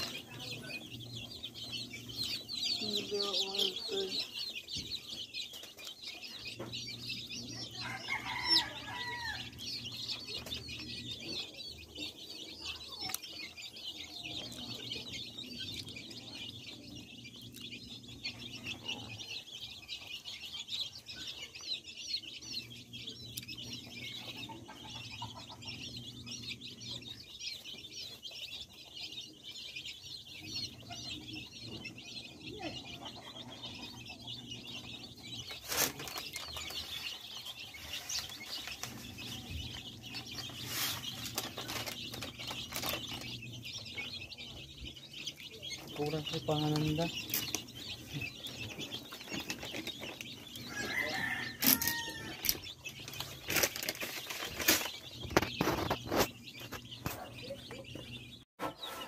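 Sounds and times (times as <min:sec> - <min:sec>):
chicks peeping: 0:00.0 - 0:59.0.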